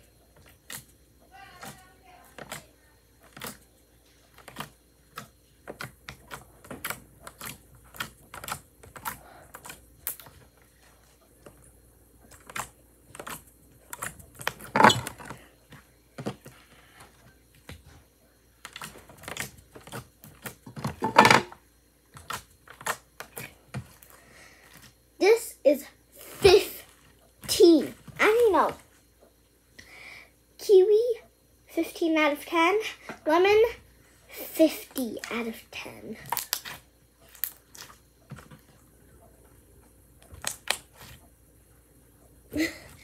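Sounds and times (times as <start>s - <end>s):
slime squishing by hand: 36.1s - 38.8s, 40.2s - 41.2s.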